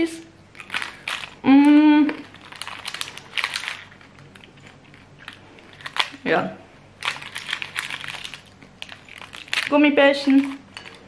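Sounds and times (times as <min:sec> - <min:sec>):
plastic wrappers crinkling: 0:00.5 - 0:06.3, 0:07.0 - 0:11.0
person humming mm: 0:01.4 - 0:02.2.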